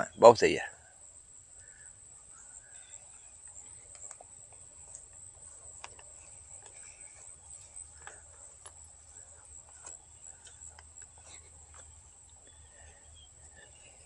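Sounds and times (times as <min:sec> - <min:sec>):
crickets chirring: 0:00.0 - 0:14.0
faint clicks: 0:02.7 - 0:06.8, 0:09.7 - 0:12.6.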